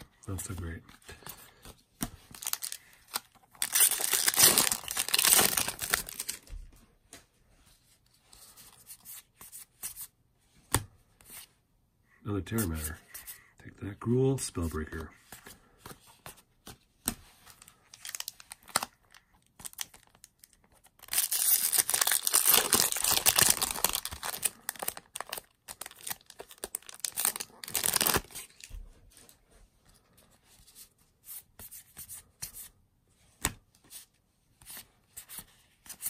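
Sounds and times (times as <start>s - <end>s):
foil wrapper crinkling and tearing: 2.3s - 6.4s, 18.0s - 28.7s
cards clicking and rustling: 19.6s - 28.7s.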